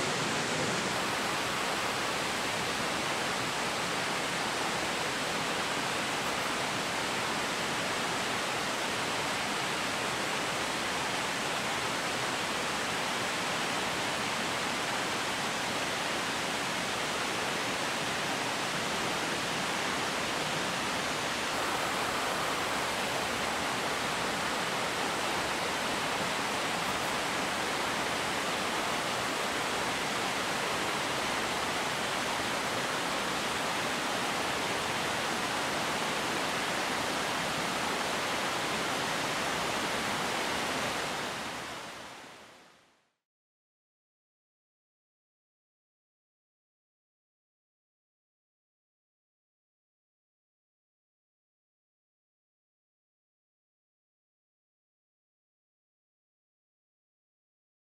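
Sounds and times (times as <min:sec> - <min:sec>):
water rushing over rocks: 0:00.0 - 0:42.5.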